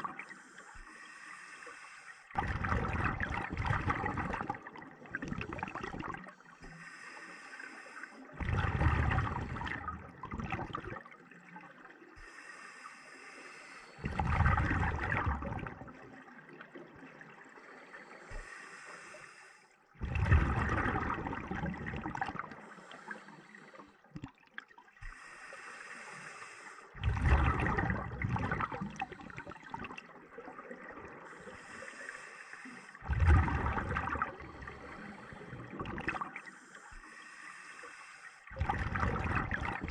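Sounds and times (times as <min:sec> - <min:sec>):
regulator inhale hiss: 0:00.2 - 0:02.4, 0:06.6 - 0:08.3, 0:12.2 - 0:14.1, 0:17.7 - 0:19.8, 0:22.5 - 0:24.0, 0:25.0 - 0:27.0, 0:31.3 - 0:33.0, 0:34.5 - 0:35.7, 0:36.4 - 0:38.5
exhaled bubbles rushing: 0:02.4 - 0:06.3, 0:08.4 - 0:11.6, 0:14.0 - 0:17.4, 0:20.0 - 0:22.6, 0:27.0 - 0:31.3, 0:33.0 - 0:36.5, 0:38.5 - 0:39.9.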